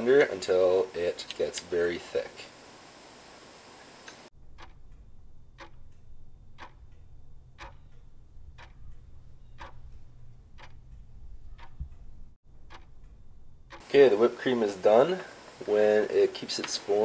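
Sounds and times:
clock ticking: 4.3s - 13.9s
low steady hum: 4.4s - 16.4s.

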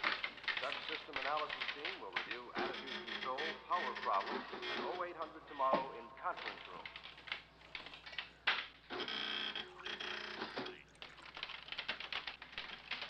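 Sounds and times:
printing terminal clattering: 0.0s - 13.0s.

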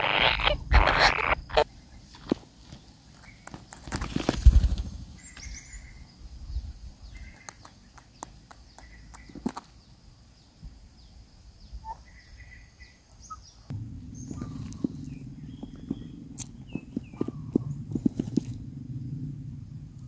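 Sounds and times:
chicks buzzy calls: 0.0s - 1.8s
bird fluttering and thumping: 3.5s - 5.2s
faint high whine: 13.7s - 20.0s.

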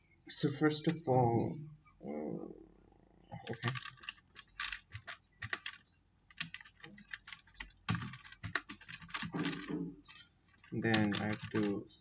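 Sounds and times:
typing on computer keyboard: 3.5s - 11.8s.

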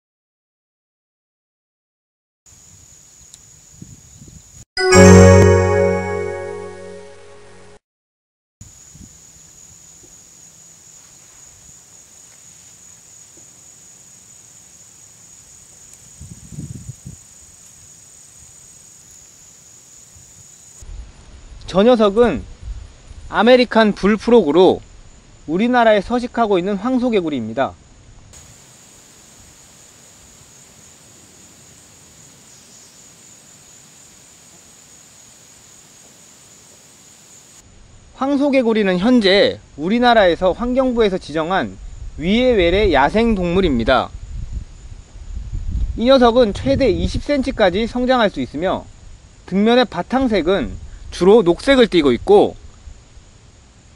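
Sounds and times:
insects droning: 2.5s - 4.6s, 8.6s - 53.9s
soft even hiss: 28.0s - 38.0s.

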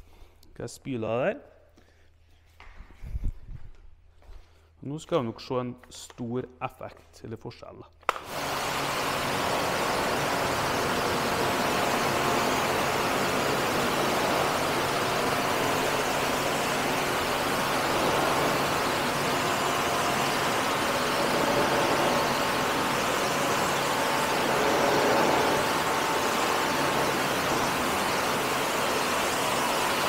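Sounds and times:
pressure washer pump humming: 8.1s - 30.0s
water jet hissing: 8.3s - 30.0s.

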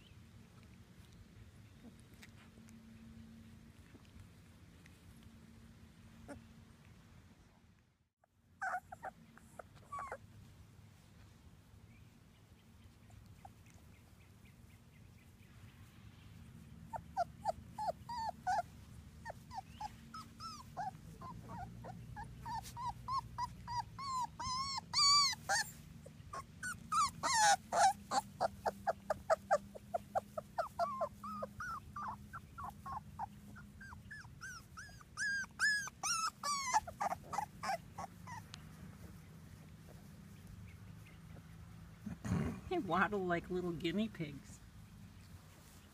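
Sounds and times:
puppies whimpering and squealing: 8.6s - 10.3s, 16.8s - 40.5s.

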